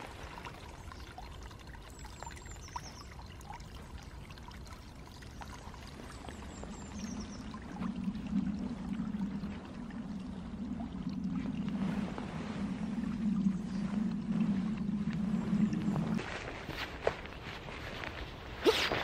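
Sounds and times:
brook running: 0:00.0 - 0:19.0
low rumble: 0:06.2 - 0:17.7.

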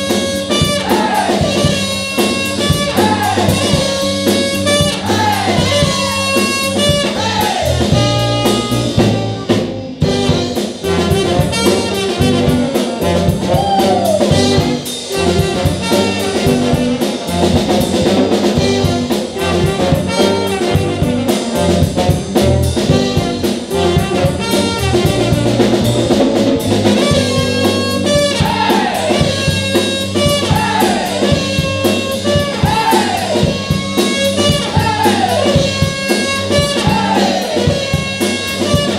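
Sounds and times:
band shouting a call: 0:00.0 - 0:17.8, 0:26.8 - 0:38.9
live jazzy band with horns: 0:00.0 - 0:38.9.

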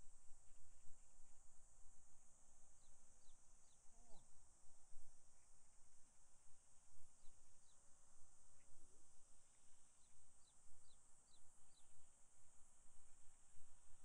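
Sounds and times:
steady high hiss: 0:00.0 - 0:14.0
small birds chirping: 0:02.6 - 0:05.6, 0:07.0 - 0:14.0.

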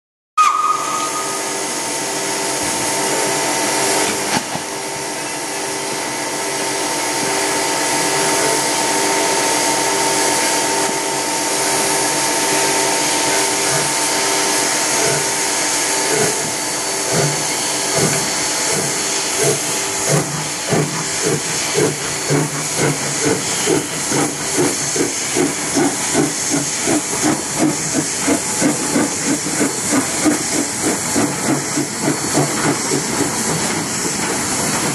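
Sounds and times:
steam locomotive whistle: 0:00.4 - 0:20.5
steam hissing: 0:00.4 - 0:34.9
locomotive exhaust chuffs: 0:06.7 - 0:34.9.

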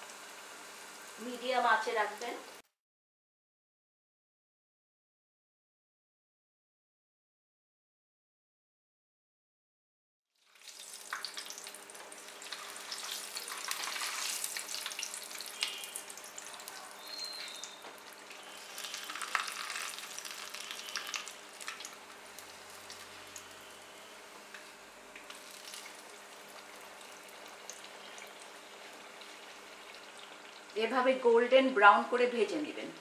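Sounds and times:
fish sizzling in hot oil: 0:00.0 - 0:02.6, 0:10.4 - 0:30.8.

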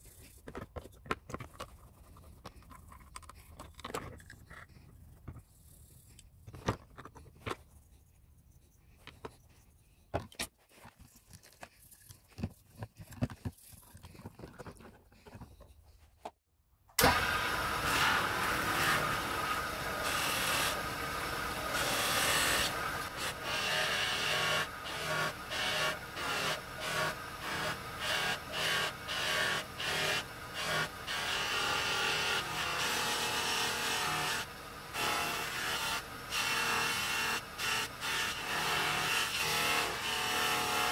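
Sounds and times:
polishing wheel motor running: 0:17.0 - 0:40.9.

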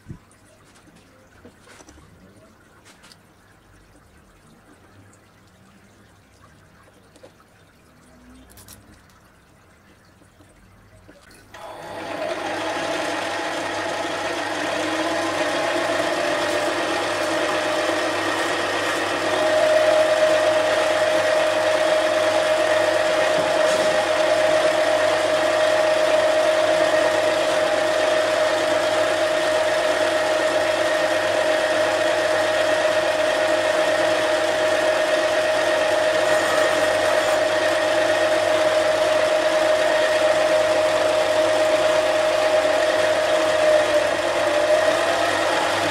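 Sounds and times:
lathe cutting metal: 0:11.6 - 0:45.9.

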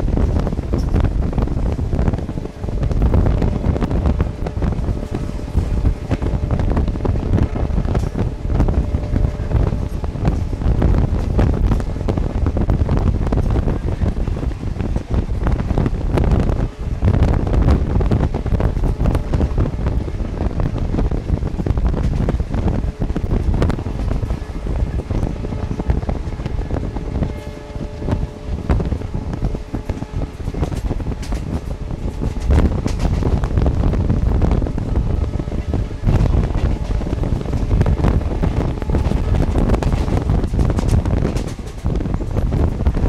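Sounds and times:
train coach rumbling on track: 0:00.0 - 0:43.0
wind buffeting microphone: 0:00.0 - 0:43.0.

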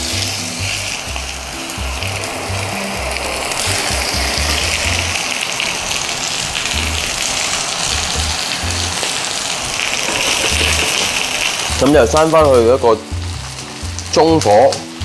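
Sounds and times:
background music with bass: 0:00.0 - 0:05.4, 0:06.6 - 0:09.2, 0:10.4 - 0:11.0, 0:11.7 - 0:15.0
chicken sizzling in a frying pan: 0:00.0 - 0:15.0.

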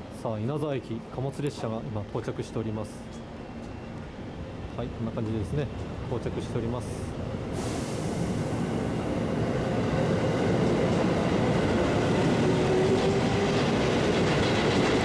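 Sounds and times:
train wheels rumbling on rail: 0:03.1 - 0:15.0.

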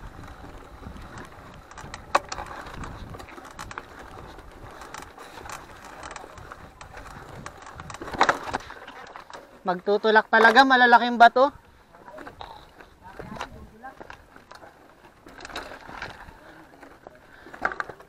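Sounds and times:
wind rumble on microphone: 0:00.0 - 0:08.7, 0:11.5 - 0:14.1
bike rattling and clicking: 0:00.0 - 0:18.0.

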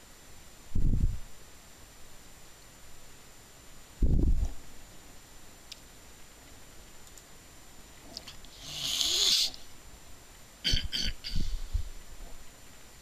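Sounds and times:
faint clicks: 0:05.7 - 0:05.9, 0:07.0 - 0:07.3
person breathing into microphone: 0:11.2 - 0:12.0.

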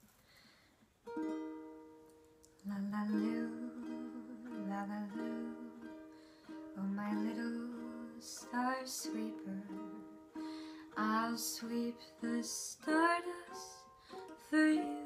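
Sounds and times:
ukulele chord ringing: 0:01.0 - 0:15.0
woman singing lullaby: 0:02.6 - 0:10.3, 0:10.9 - 0:15.0.

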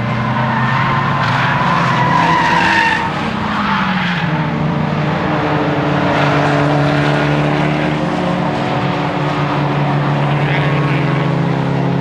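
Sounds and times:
car engine under load: 0:00.0 - 0:12.0
tyres squealing: 0:00.2 - 0:04.4.

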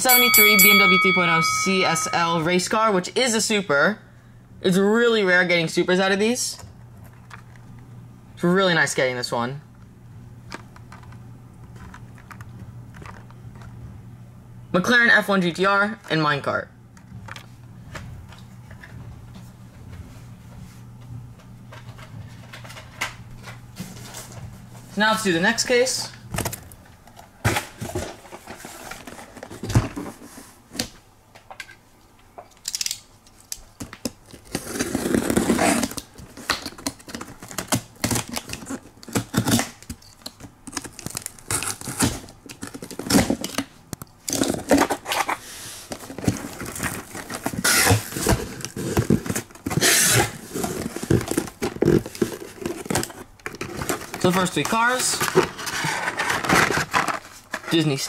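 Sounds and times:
cardboard and tape tearing: 0:34.0 - 0:58.0.

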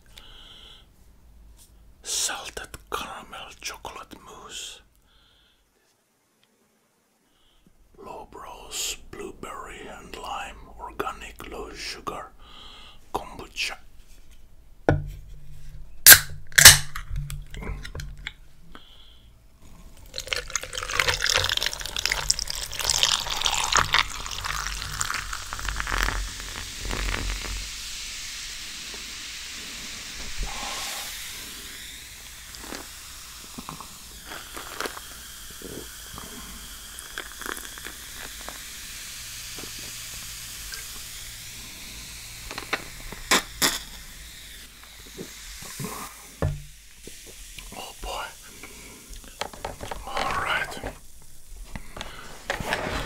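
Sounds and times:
carbonated drink fizzing: 0:19.8 - 0:53.0
drink poured into a glass: 0:20.0 - 0:27.4, 0:36.6 - 0:38.6.

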